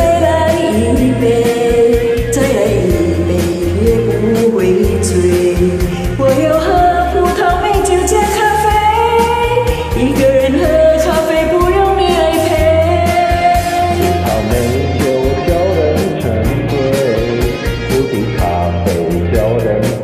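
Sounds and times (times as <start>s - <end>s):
woman singing pop song: 0.0s - 14.2s
karaoke backing track with bass: 0.0s - 20.0s.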